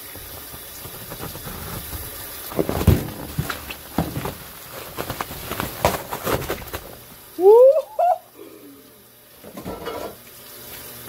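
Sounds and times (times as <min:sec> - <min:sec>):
bubble wrap crinkling: 0:00.4 - 0:07.3.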